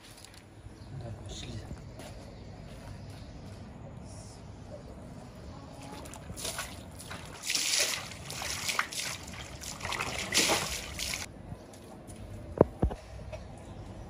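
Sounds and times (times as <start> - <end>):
water splashing and dripping: 5.8 - 11.3.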